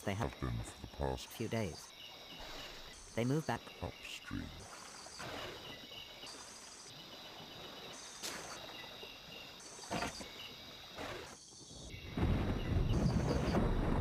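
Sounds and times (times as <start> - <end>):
night insects chirping: 0.0 - 14.0
water splashing and sloshing: 0.0 - 14.0.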